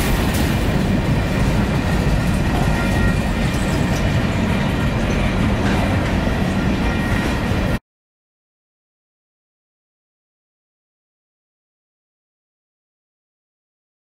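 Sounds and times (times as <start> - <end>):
train wheels rumbling on rail: 0.0 - 7.8
high wheel squeals: 2.5 - 4.2.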